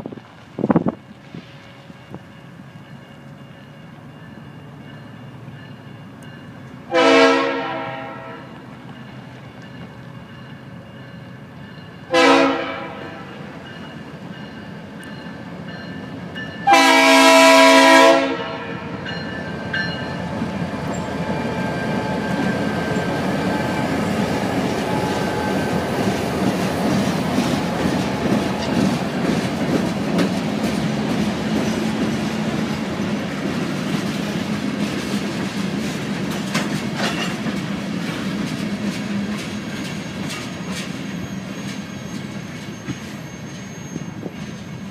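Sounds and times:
locomotive engine passing: 0.1s - 44.9s
locomotive horn blasts: 6.9s - 8.6s, 12.1s - 13.5s, 16.6s - 19.0s
train wheels clacking over rail joints: 22.0s - 44.9s.

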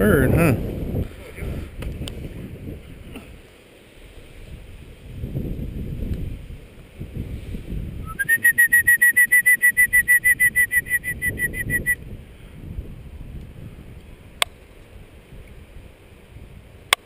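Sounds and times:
wind buffeting microphone: 0.0s - 16.9s
dog whistle trilling: 8.0s - 12.0s.

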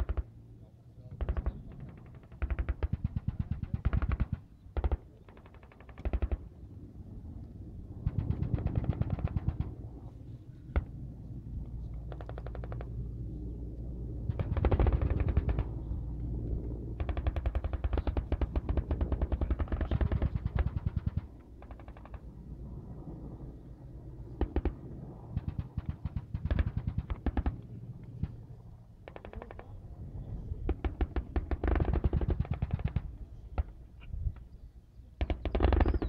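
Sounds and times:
automatic gunfire bursts: 17.0s - 22.2s, 30.8s - 33.1s, 35.2s - 36.0s.

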